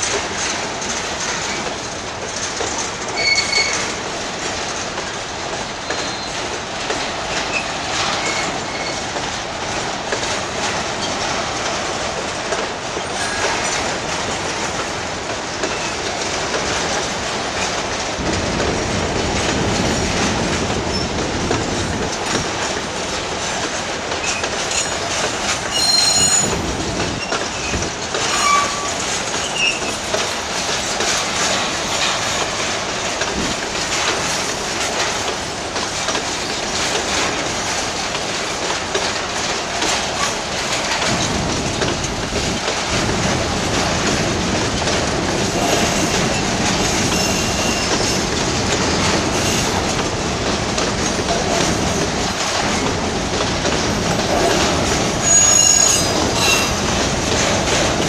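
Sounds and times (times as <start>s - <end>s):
train wheels clattering on rails: 0.0s - 58.0s
high wheel squeal: 25.7s - 26.6s, 27.2s - 29.9s, 47.1s - 48.1s, 55.2s - 56.9s.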